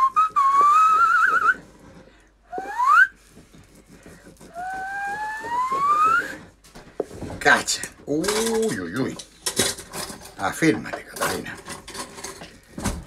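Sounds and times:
high whistle-like tones: 0:00.0 - 0:01.7, 0:02.5 - 0:03.2, 0:04.5 - 0:06.5
knife scraping on wooden board: 0:00.9 - 0:07.1.

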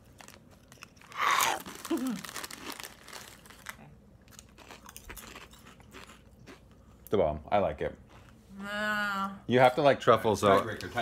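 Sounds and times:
foil bag crinkling: 0:00.0 - 0:04.5
chips crunching: 0:00.0 - 0:06.6.

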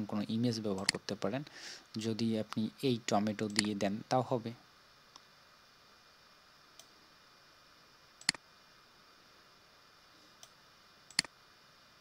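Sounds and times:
faint steady hiss: 0:00.0 - 0:12.0
computer mouse clicking: 0:03.4 - 0:03.8, 0:08.2 - 0:08.4, 0:10.4 - 0:11.3.

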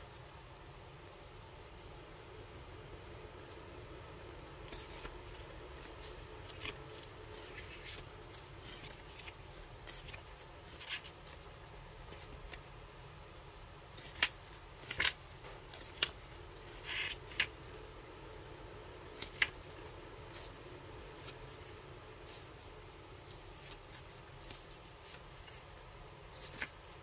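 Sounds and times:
paper pages rustling: 0:04.3 - 0:12.8, 0:13.9 - 0:17.8, 0:19.0 - 0:22.6, 0:23.2 - 0:27.0.

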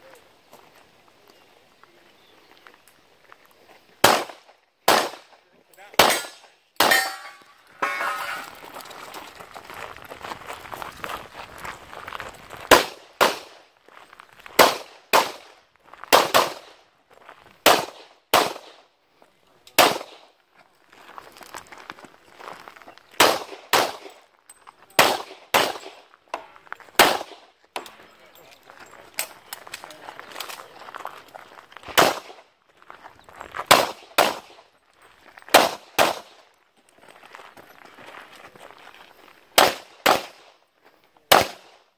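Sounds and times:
footsteps on gravel: 0:00.4 - 0:04.2, 0:06.8 - 0:17.9, 0:20.3 - 0:41.2
handgun shots: 0:04.0 - 0:05.3, 0:06.0 - 0:08.5, 0:12.7 - 0:13.5, 0:14.6 - 0:15.5, 0:16.2 - 0:16.7, 0:17.7 - 0:18.8, 0:19.8 - 0:20.2, 0:23.2 - 0:24.1, 0:25.0 - 0:26.0, 0:27.0 - 0:27.4, 0:32.0 - 0:32.4, 0:33.7 - 0:34.6, 0:35.5 - 0:36.4, 0:39.6 - 0:40.4, 0:41.3 - 0:41.8.

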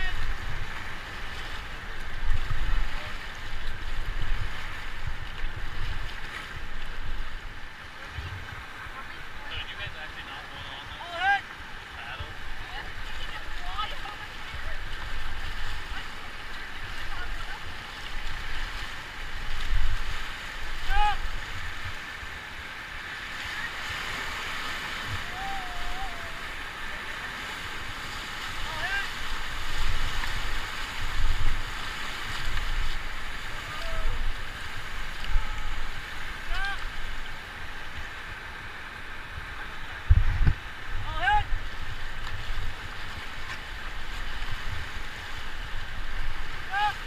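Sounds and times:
river water rushing: 0:00.0 - 0:47.0
wind gusting on microphone: 0:39.3 - 0:46.6
wind buffeting microphone: 0:40.0 - 0:43.0.

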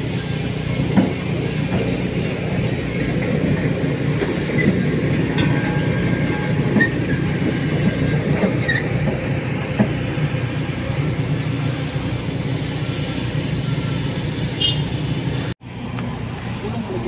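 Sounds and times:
heavy machinery engine rumble: 0:00.0 - 0:17.0
short squeaks: 0:04.2 - 0:09.2.

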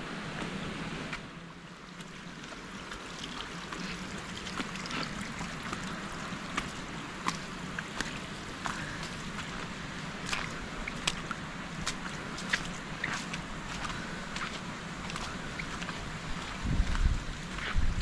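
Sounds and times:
running water: 0:00.0 - 0:18.0.

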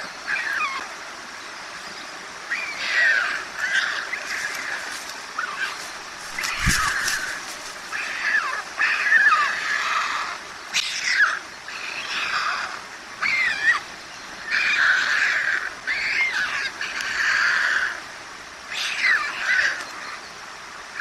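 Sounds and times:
stork nestlings begging calls: 0:03.6 - 0:08.4.

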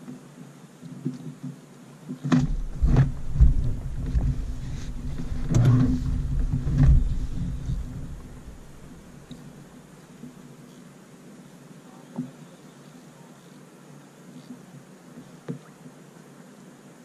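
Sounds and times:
sharp knocks on boat hull: 0:02.3 - 0:09.2
low rumbling through boat hull: 0:02.3 - 0:09.8.

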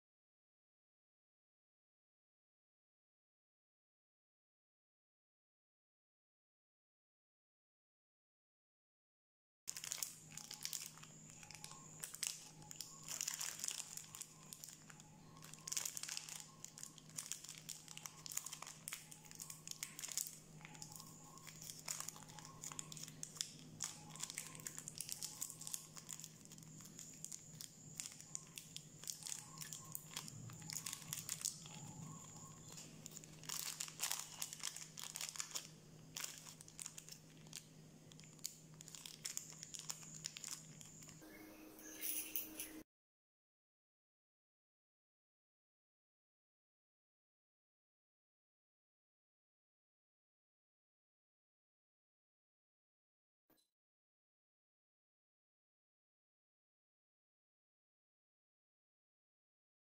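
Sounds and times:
plastic wrapper crinkling and tearing: 0:09.7 - 0:41.2
faint steady hum: 0:09.7 - 0:42.8.

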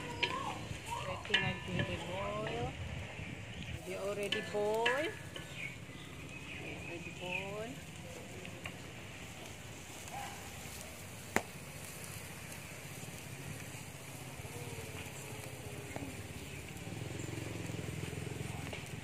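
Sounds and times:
soup boiling over fire: 0:00.0 - 0:19.0.

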